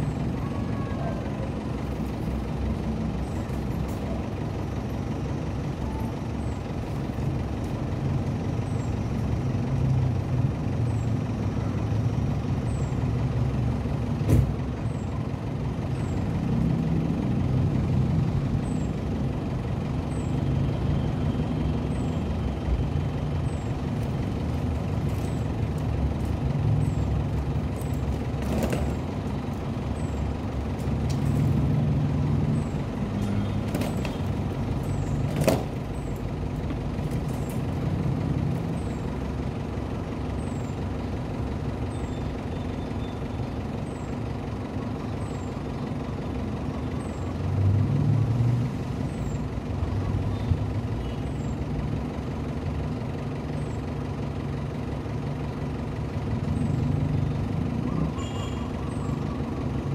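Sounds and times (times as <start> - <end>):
car engine idling: 0.0 - 47.7, 49.0 - 59.9.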